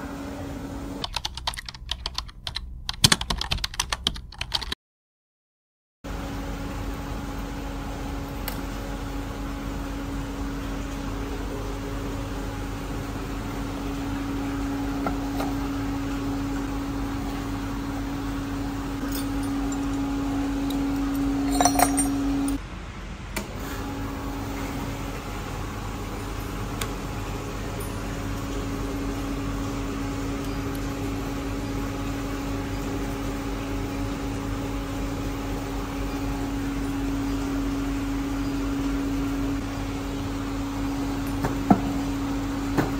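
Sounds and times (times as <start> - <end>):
induction melting machine hum: 0.0 - 1.0, 6.1 - 22.7, 23.4 - 42.9
metallic clinks: 19.0 - 20.0, 21.1 - 22.6.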